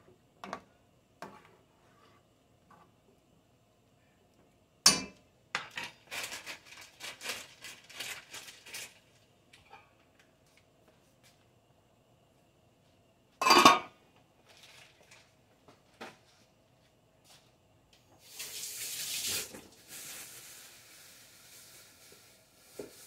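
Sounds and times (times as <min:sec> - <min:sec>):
pot lid clanging: 0:13.4 - 0:13.9.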